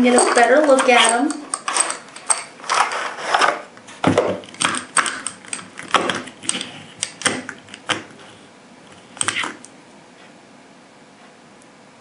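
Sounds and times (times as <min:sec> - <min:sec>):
metal cartridges clinking in tray: 0:00.0 - 0:03.5, 0:04.4 - 0:06.0.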